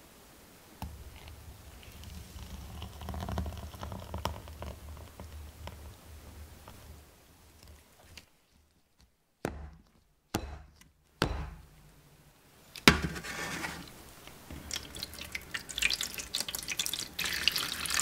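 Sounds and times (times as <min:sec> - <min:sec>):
water pouring and splashing: 0:00.9 - 0:07.0, 0:13.2 - 0:18.0
metal cake pan knocking: 0:10.4 - 0:11.7.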